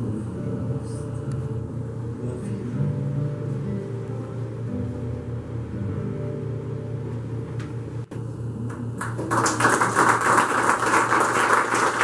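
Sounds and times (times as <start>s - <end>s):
low steady hum: 0.0s - 12.0s
audience applause: 9.0s - 12.0s.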